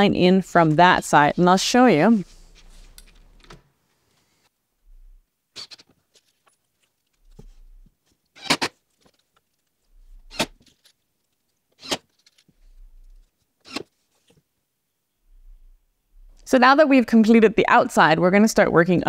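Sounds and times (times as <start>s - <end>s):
power drill driving screws: 10.3s - 10.6s, 11.8s - 12.1s, 13.6s - 13.9s.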